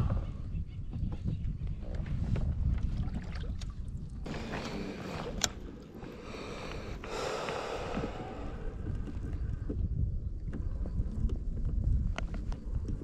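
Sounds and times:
wind rumbling on microphone: 0:00.0 - 0:13.0
water against kayak hull: 0:00.9 - 0:13.0
fishing rod handling noise: 0:04.3 - 0:06.1.

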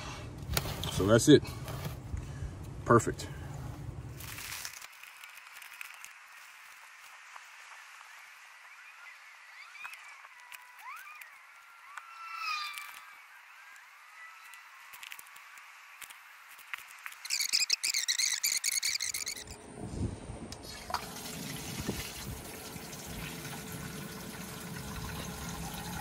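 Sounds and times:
water trickling into watering can: 0:20.6 - 0:26.0.

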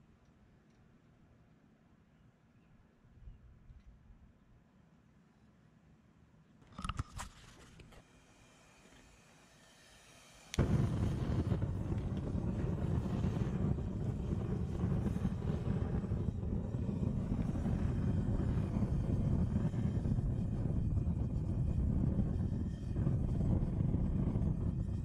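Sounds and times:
burner lighting pop: 0:10.5 - 0:18.8
loud roar of flame: 0:10.5 - 0:25.0.

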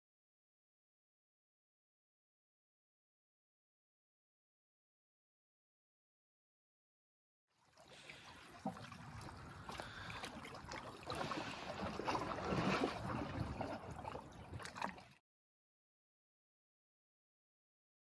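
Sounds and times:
water gurgling and splashing: 0:07.6 - 0:15.2
waves lapping against shore ice: 0:07.6 - 0:15.2.

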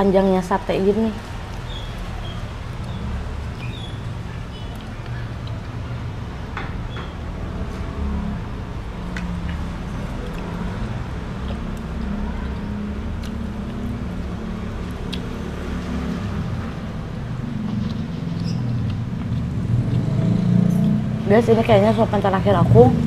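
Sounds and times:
closed-mouth chewing: 0:09.2 - 0:21.0.

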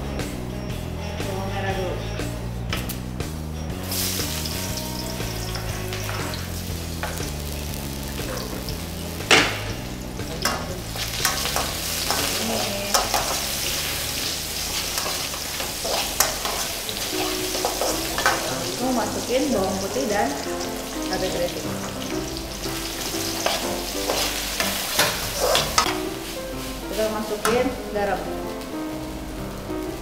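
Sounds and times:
shallots sizzling in hot oil: 0:03.8 - 0:30.0
metal spatula knocking on wok: 0:08.3 - 0:13.6.

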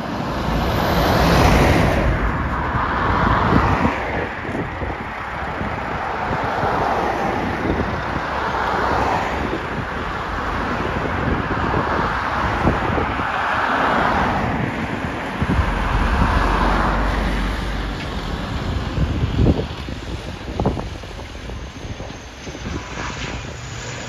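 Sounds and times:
cars driving past: 0:00.0 - 0:24.0
wind buffeting microphone: 0:00.0 - 0:24.0
heavy lorry rumbling past: 0:08.2 - 0:22.6.

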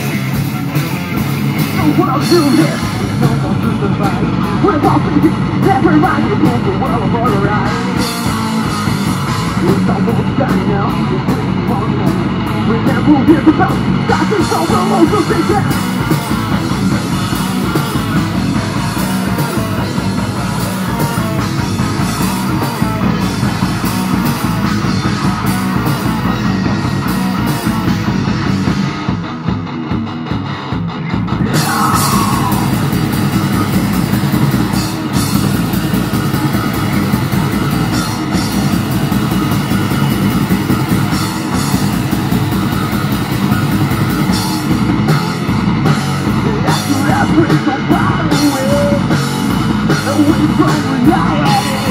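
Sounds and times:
metal band playing: 0:00.0 - 0:51.9.

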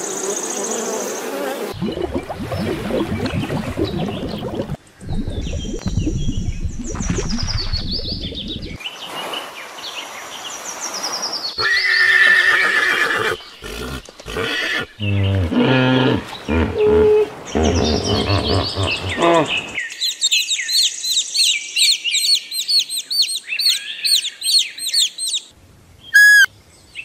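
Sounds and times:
deep pulsing animal calls: 0:13.6 - 0:19.8
falling high chirps: 0:26.2 - 0:26.5
loud high animal call: 0:26.2 - 0:26.5.

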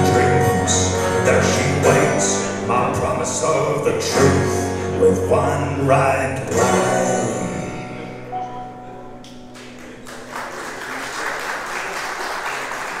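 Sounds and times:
keyboard and guitar chord: 0:00.0 - 0:10.1
audience applause: 0:09.5 - 0:13.0.

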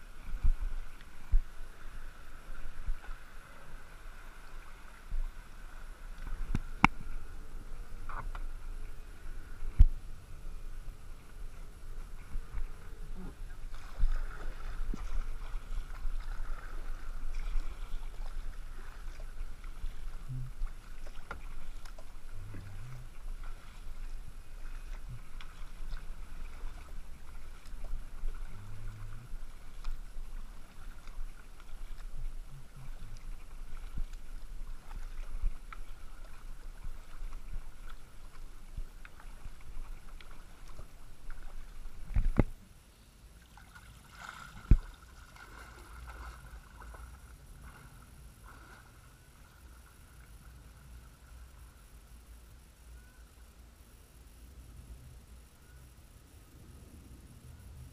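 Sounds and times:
low microphone rumble: 0:00.0 - 0:42.8
kayak paddle splashing: 0:00.0 - 0:52.8.

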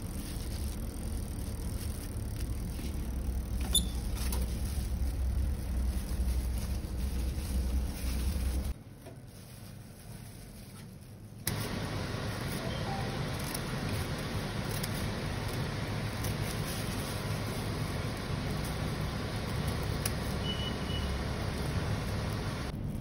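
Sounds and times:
steady low rumble: 0:00.0 - 0:08.8.

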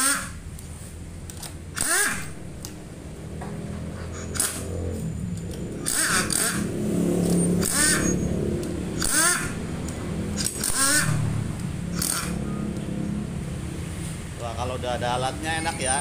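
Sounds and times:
pneumatic impact wrench bursts: 0:00.0 - 0:00.4, 0:01.7 - 0:02.3, 0:04.1 - 0:04.6, 0:05.8 - 0:08.2, 0:09.0 - 0:09.6, 0:10.4 - 0:11.2, 0:11.9 - 0:12.4
low hum: 0:00.0 - 0:16.0.

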